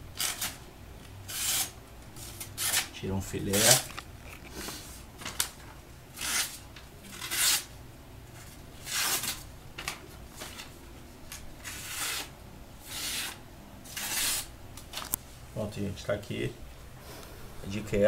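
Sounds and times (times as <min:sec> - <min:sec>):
knife slicing paper: 0:01.3 - 0:02.9, 0:06.2 - 0:07.7, 0:08.8 - 0:09.4, 0:11.6 - 0:14.5.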